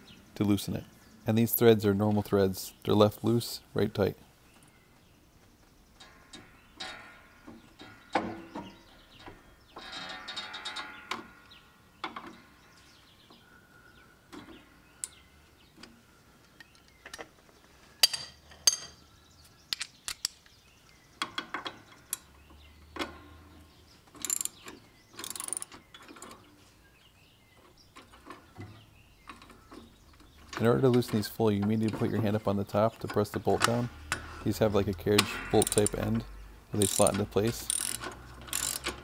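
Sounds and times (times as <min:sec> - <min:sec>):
metallic clicks and rattles: 0:19.7 - 0:23.4, 0:24.1 - 0:26.5, 0:27.6 - 0:39.0.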